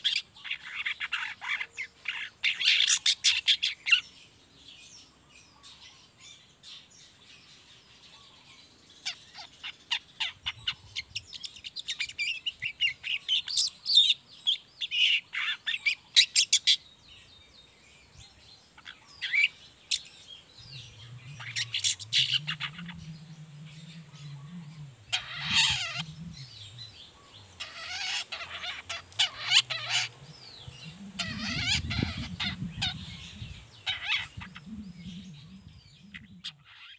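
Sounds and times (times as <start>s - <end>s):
bird twittering chatter: 0.0s - 36.9s
faint low hum: 16.9s - 36.9s.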